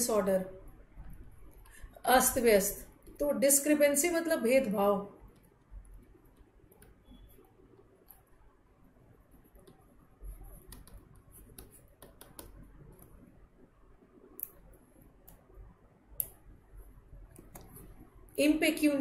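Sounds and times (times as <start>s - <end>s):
stylus tapping on tablet: 10.6s - 13.2s.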